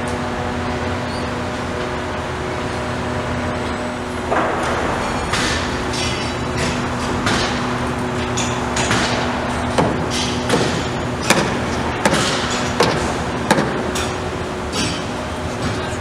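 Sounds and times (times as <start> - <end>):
steady machine hum: 0.0 - 16.0
sharp hammer-like knocks: 4.3 - 7.7, 8.3 - 14.2.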